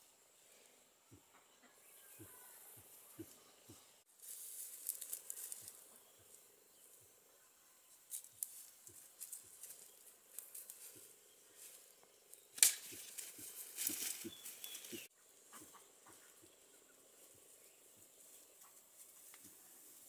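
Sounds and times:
rustling through undergrowth: 0:02.5 - 0:20.0
sharp twig crack: 0:12.3 - 0:15.1.

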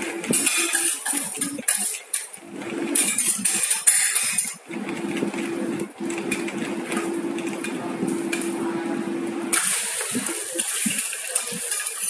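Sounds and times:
metal spatulas scraping a griddle: 0:00.0 - 0:05.6, 0:09.5 - 0:12.0.

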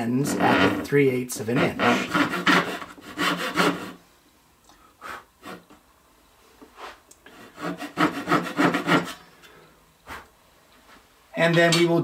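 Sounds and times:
handsaw cutting wood: 0:00.2 - 0:00.9, 0:01.5 - 0:04.0, 0:07.3 - 0:09.2.

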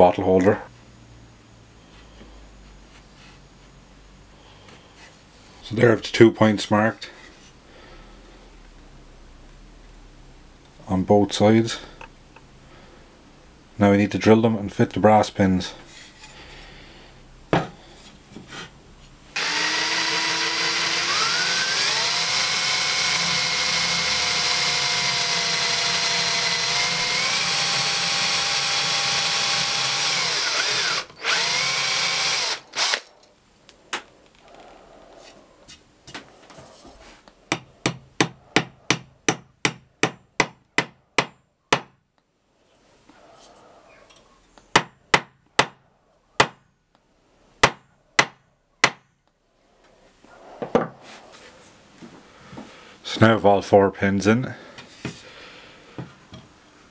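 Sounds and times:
drill motor whine: 0:19.4 - 0:33.1.

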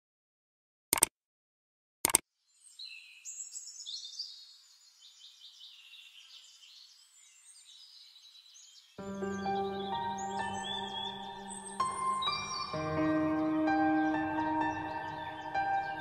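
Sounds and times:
mouse click: 0:00.9 - 0:01.1
small birds chirping: 0:02.4 - 0:16.0
soft ambient music: 0:09.0 - 0:16.0.

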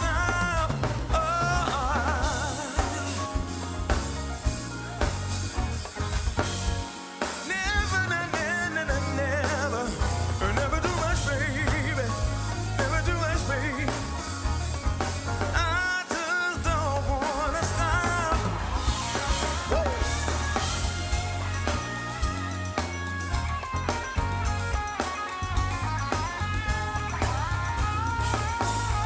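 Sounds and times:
person singing: 0:00.0 - 0:04.2, 0:07.3 - 0:14.5, 0:15.4 - 0:21.1
live band playing: 0:00.0 - 0:29.0.

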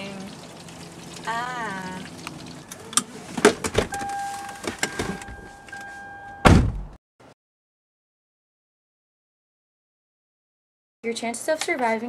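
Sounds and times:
car door slamming: 0:03.4 - 0:05.6, 0:06.3 - 0:07.0
car warning tone: 0:03.8 - 0:06.7.

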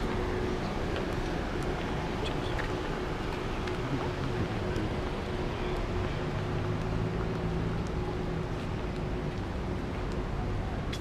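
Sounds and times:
cars driving slowly past: 0:00.0 - 0:11.0.

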